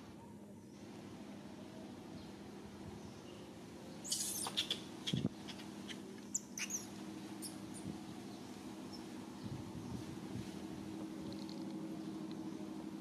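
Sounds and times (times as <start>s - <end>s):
steady low hum: 0.0s - 13.0s
animal squeaks and chirps: 4.0s - 7.9s.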